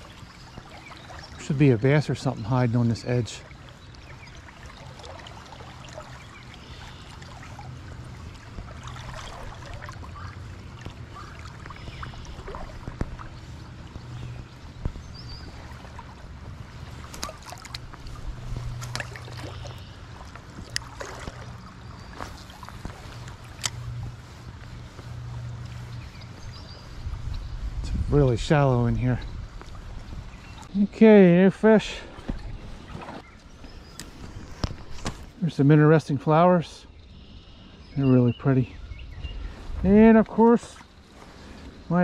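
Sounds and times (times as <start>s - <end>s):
creek water flowing: 0.0s - 38.7s, 39.3s - 42.0s
steady low rumble: 5.8s - 35.0s.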